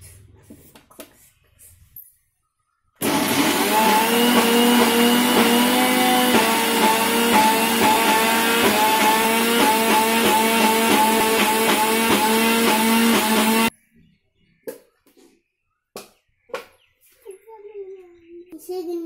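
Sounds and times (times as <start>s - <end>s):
mixer grinder motor whining: 3.0s - 13.7s.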